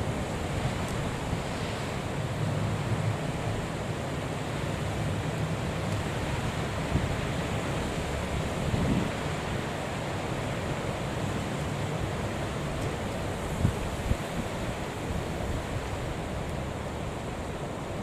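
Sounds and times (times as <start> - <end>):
rough sea: 0.0 - 18.0
wind buffeting microphone: 8.2 - 9.6.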